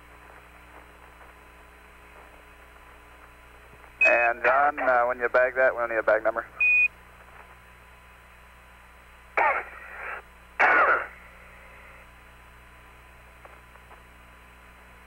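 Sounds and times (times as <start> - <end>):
radio hiss and hum: 0.0 - 15.0
man's voice on radio: 4.0 - 6.6.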